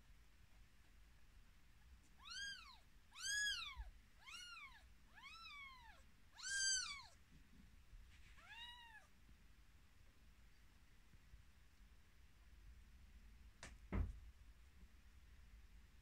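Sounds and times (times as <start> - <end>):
kittens mewing: 2.2 - 7.2.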